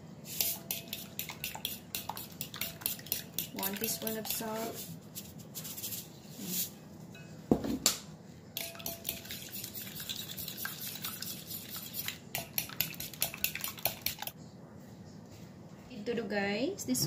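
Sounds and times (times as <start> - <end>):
fork clinking against glass bowl: 0.4 - 4.6, 8.6 - 11.3.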